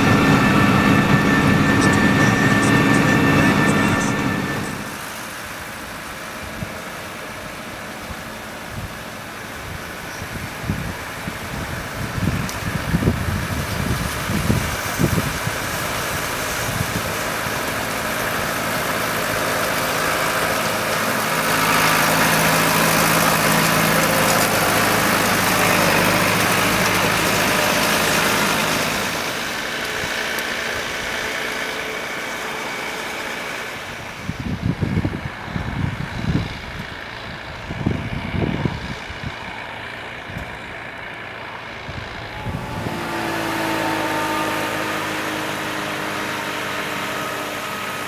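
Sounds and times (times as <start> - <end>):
track noise: 0.0 - 5.1, 17.1 - 35.5, 36.4 - 47.4
diesel engine droning: 0.0 - 48.0.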